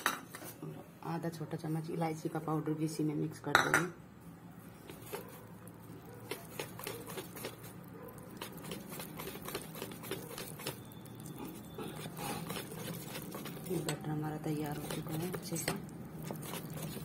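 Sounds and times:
whisk clicking against metal bowl: 0:08.4 - 0:10.8, 0:11.8 - 0:17.0.

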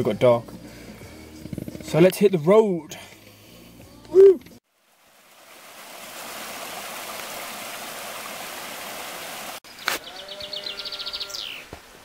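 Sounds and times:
water rushing: 0:04.7 - 0:09.6
songbird trilling: 0:09.7 - 0:11.7.

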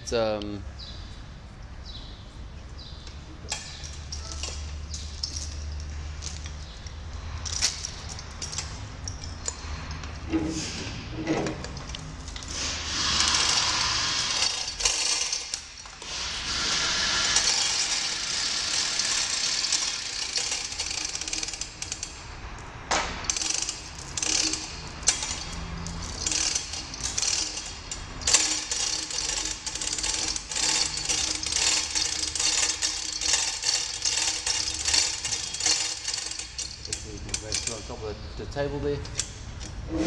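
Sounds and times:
hoist chain rattling and clinking: 0:03.4 - 0:10.5, 0:11.2 - 0:22.3, 0:23.0 - 0:38.0.

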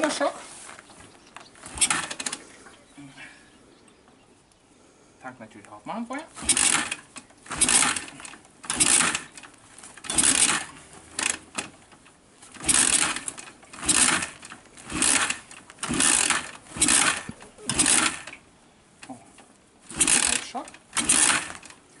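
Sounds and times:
electric starter whirring: 0:01.6 - 0:02.5, 0:06.4 - 0:18.5, 0:19.4 - 0:21.9.

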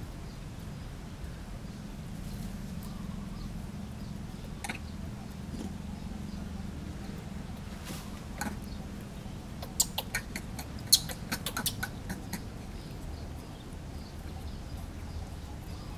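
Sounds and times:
low background rumble: 0:00.0 - 0:15.9
monkey squeaking: 0:09.6 - 0:12.5.

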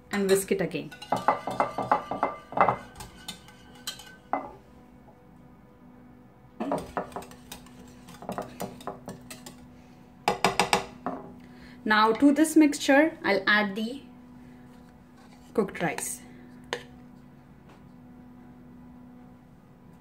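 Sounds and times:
wire whisk beating in a bowl: 0:00.2 - 0:04.4, 0:06.6 - 0:09.6.

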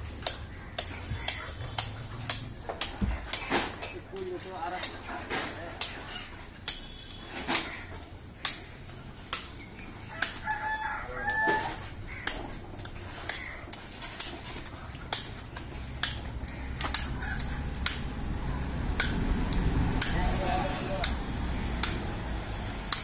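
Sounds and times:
rooster crowing: 0:10.0 - 0:12.3, 0:17.0 - 0:17.8.

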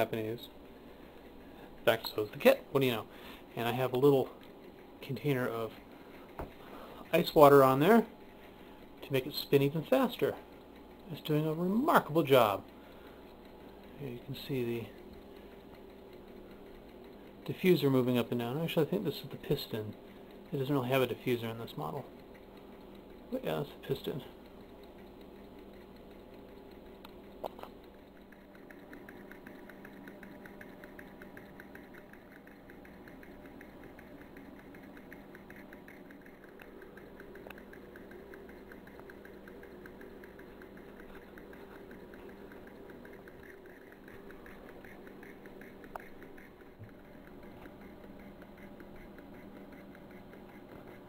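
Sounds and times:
small engine ticking: 0:01.8 - 0:51.0.

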